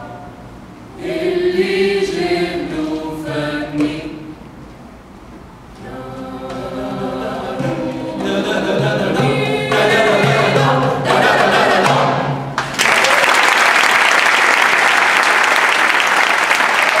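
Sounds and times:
mixed choir singing: 0.0 - 4.5, 5.8 - 12.6
audience applause: 12.6 - 17.0.

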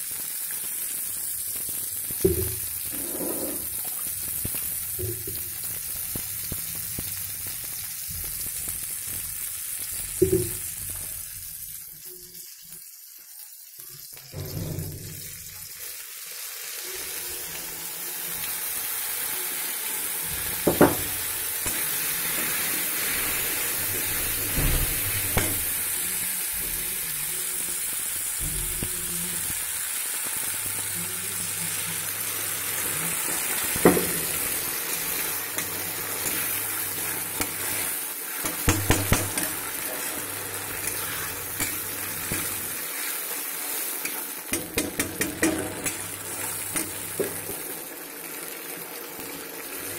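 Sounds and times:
vegetables sizzling in wok: 0.0 - 49.9
metal spoon knocking pan: 10.2 - 10.6, 20.6 - 21.2, 25.2 - 25.8, 38.4 - 39.6, 44.5 - 46.1.

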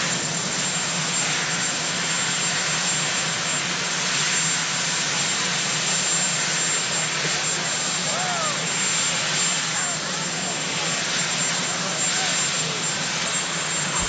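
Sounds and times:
helicopter engines and rotor: 0.0 - 14.0
high turbine whine: 0.0 - 14.0.

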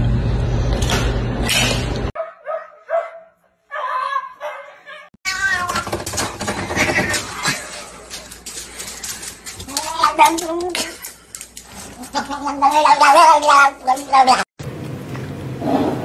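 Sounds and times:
cat yowling: 3.7 - 5.9
cat meowing: 5.2 - 6.0
food bowl rattling on tile floor: 5.5 - 14.4.

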